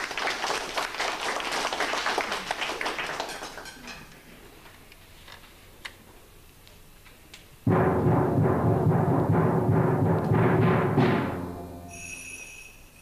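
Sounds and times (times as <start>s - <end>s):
audience clapping: 0.0s - 3.9s.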